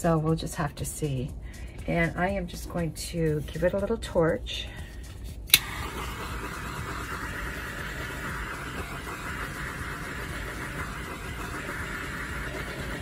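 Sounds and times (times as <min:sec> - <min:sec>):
torch flame hissing: 0:05.5 - 0:13.0.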